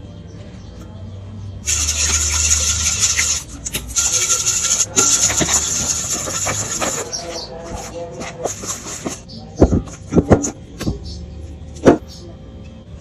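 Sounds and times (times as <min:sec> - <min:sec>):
spoon scraping metal bowl: 0:01.7 - 0:09.3.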